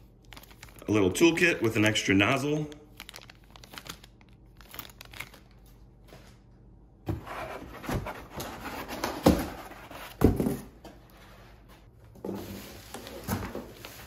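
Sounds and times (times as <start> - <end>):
plastic bag crinkling: 0.0 - 5.8.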